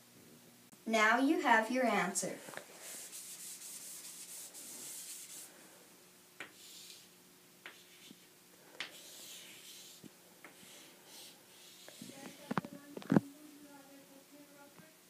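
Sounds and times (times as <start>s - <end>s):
chalk scratching on chalkboard: 2.8s - 5.5s, 6.4s - 12.6s
chalk tapping on chalkboard: 6.4s - 7.0s, 7.6s - 8.2s, 8.8s - 12.6s.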